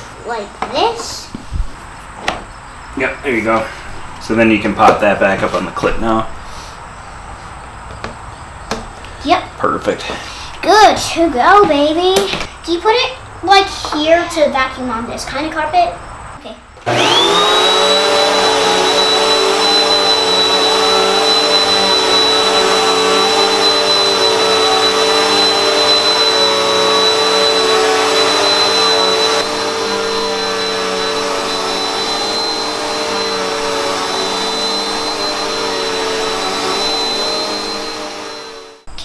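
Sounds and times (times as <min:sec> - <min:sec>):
vacuum cleaner running: 0:03.0 - 0:06.2, 0:16.8 - 0:39.0.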